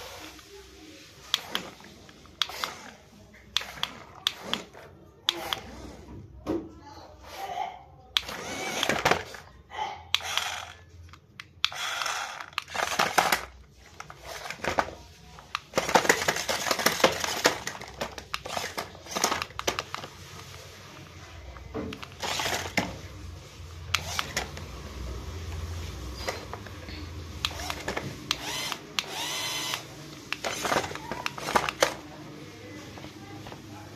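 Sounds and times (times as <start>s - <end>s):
toy car clattering on floor: 10.3s - 15.0s, 15.6s - 20.1s.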